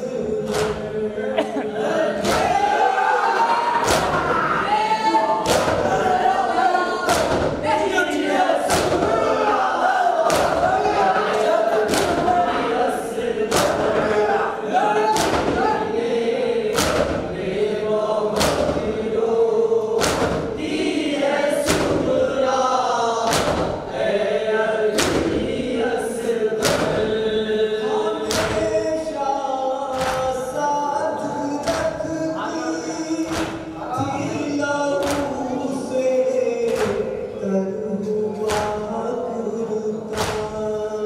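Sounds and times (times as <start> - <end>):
men chanting in chorus: 0.0 - 41.0
chest beating slaps: 0.5 - 0.9, 2.2 - 2.6, 3.8 - 4.4, 5.4 - 6.1, 7.1 - 7.7, 8.7 - 9.4, 10.2 - 10.9, 11.8 - 12.4, 13.5 - 14.2, 15.1 - 15.8, 16.7 - 17.3, 18.3 - 19.0, 20.0 - 20.6, 21.6 - 22.2, 23.3 - 23.9, 25.0 - 25.5, 26.6 - 27.2, 28.3 - 28.7, 30.0 - 30.4, 33.3 - 33.8, 35.0 - 35.4, 36.7 - 37.2, 38.5 - 38.8, 40.1 - 40.6.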